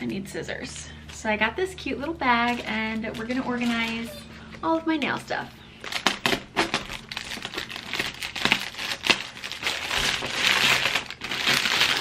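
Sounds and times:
plastic packaging crinkling: 0:01.0 - 0:04.1, 0:04.7 - 0:12.0
scissors cutting plastic: 0:05.8 - 0:12.0.

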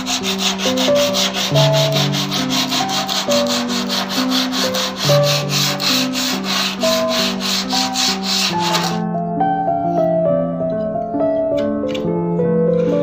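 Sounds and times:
sandpaper rubbing on wood: 0:00.0 - 0:09.0
slow background music: 0:00.0 - 0:13.0.

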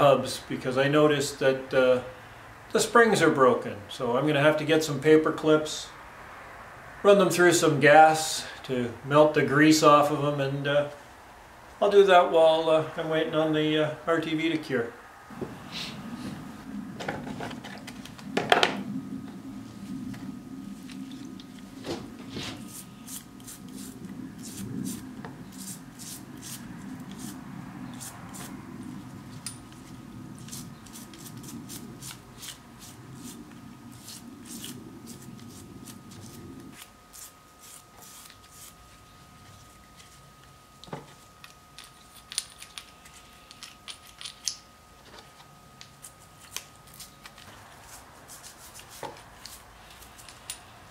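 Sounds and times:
low steady hum: 0:00.0 - 0:50.9
brush scrubbing metal: 0:22.2 - 0:28.6, 0:30.4 - 0:39.0, 0:47.8 - 0:50.3.

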